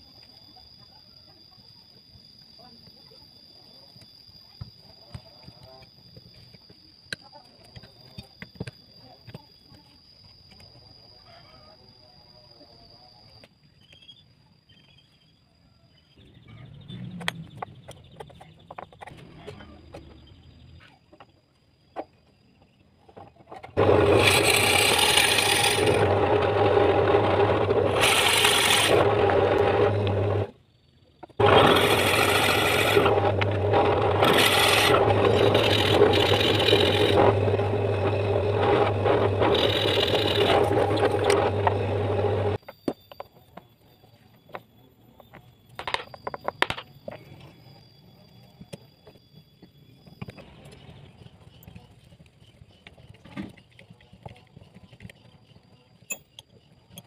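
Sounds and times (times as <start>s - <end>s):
electric drill boring into wood: 23.8s - 30.5s, 31.4s - 42.6s.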